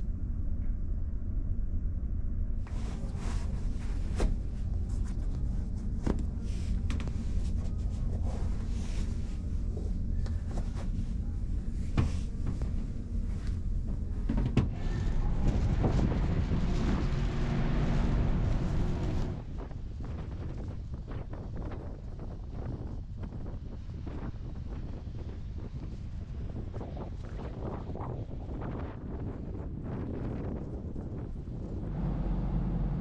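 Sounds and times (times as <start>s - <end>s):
ship engines rumbling: 2.7s - 20.0s, 31.6s - 33.0s.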